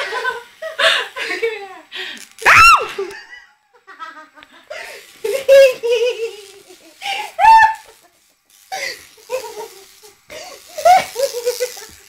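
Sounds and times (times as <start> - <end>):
women laughing: 0.0 - 1.9, 2.9 - 8.2, 8.8 - 12.0.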